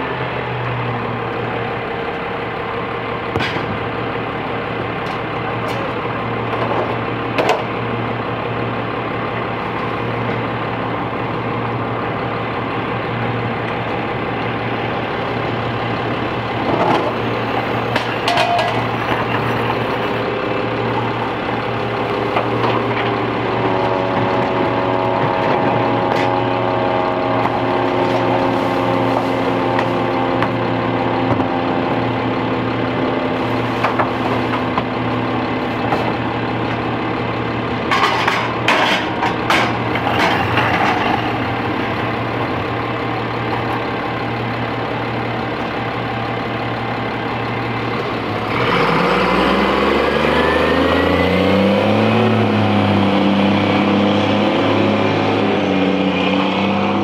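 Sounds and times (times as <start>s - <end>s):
diesel engine idling: 0.0s - 57.0s
multi-tone hum: 1.0s - 57.0s
trash cans clanking and banging: 16.6s - 19.9s, 37.8s - 41.6s.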